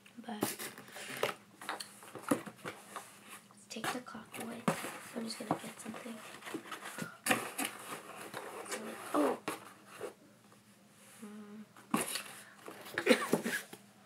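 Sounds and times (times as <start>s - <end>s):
cardboard box rustling and scraping: 4.4s - 10.2s.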